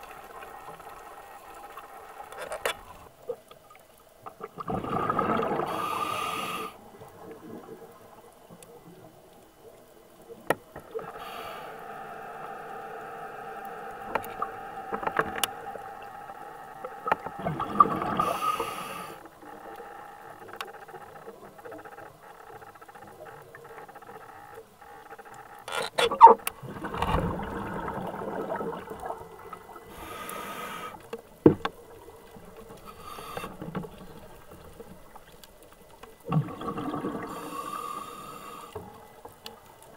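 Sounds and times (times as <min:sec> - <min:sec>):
diver breathing bubbles: 0:04.6 - 0:07.6, 0:17.1 - 0:19.6, 0:26.6 - 0:31.1, 0:36.3 - 0:39.0.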